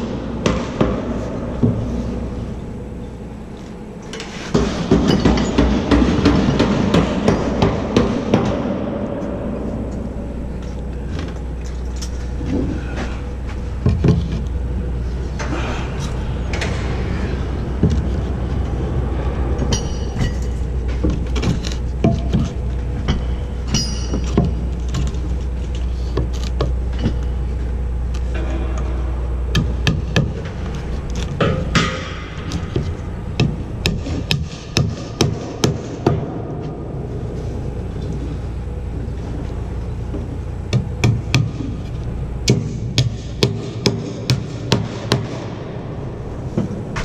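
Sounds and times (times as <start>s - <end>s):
steady low rumble: 0.0s - 47.0s
hammer blows: 4.1s - 37.7s.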